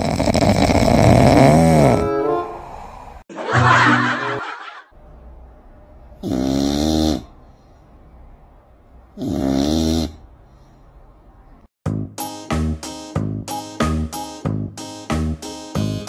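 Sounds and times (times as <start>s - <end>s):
cat snoring: 0.0s - 2.0s, 6.2s - 7.3s, 9.2s - 10.2s.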